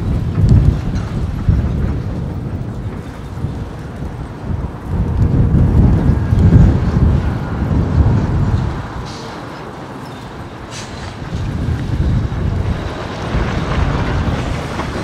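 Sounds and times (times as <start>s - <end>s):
heavy truck rumbling: 0.0s - 15.0s.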